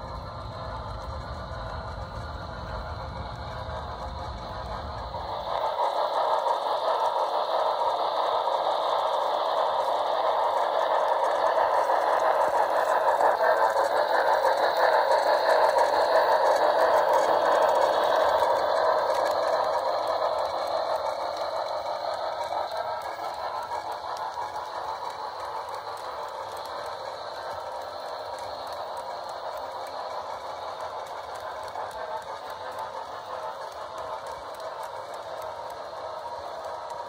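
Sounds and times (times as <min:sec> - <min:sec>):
model train wheels clattering: 0:00.0 - 0:37.0.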